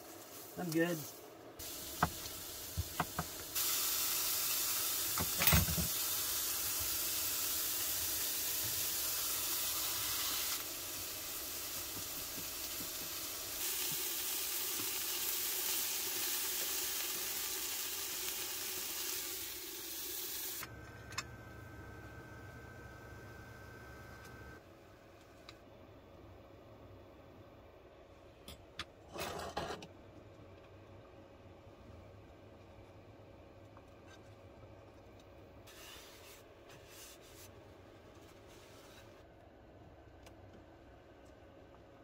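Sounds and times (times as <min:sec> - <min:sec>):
food sizzling in a frying pan: 0:00.0 - 0:20.6.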